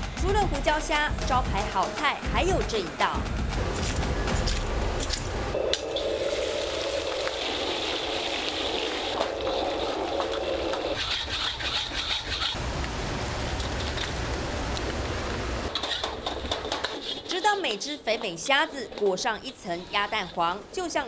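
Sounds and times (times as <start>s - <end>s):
shrimp sizzling in a wok: 6.0s - 9.9s.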